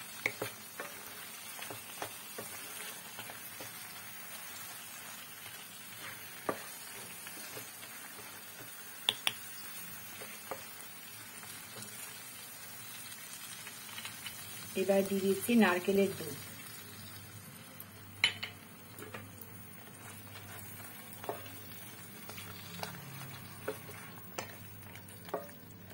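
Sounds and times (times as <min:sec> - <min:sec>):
food sizzling gently in pan: 0:00.0 - 0:25.9
spatula scraping and tapping pan: 0:00.1 - 0:12.1, 0:18.2 - 0:25.9.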